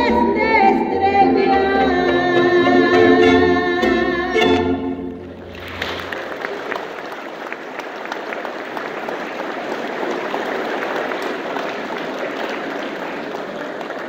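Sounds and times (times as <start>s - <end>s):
congregation applauding: 5.2s - 14.0s.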